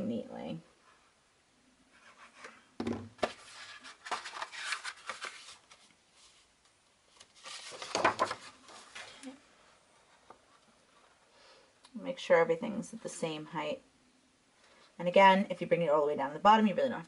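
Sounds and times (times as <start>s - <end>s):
paper rustling and sliding: 2.0s - 6.5s, 7.1s - 9.4s
plastic bottle knocking down: 2.8s - 3.3s.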